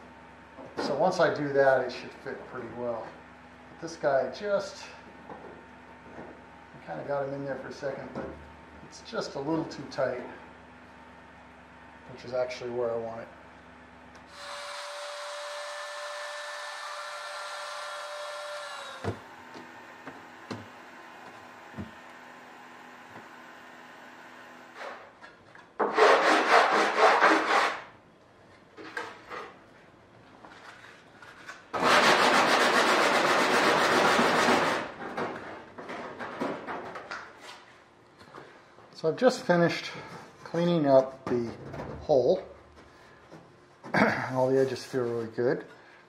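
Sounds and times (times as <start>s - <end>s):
small motor humming: 14.2s - 25.0s
rasping rubbing strokes: 25.8s - 27.9s.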